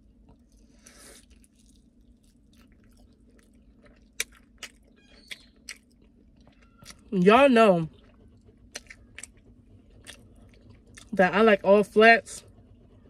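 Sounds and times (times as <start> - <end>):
person chewing: 0.0 - 7.2, 7.9 - 11.2.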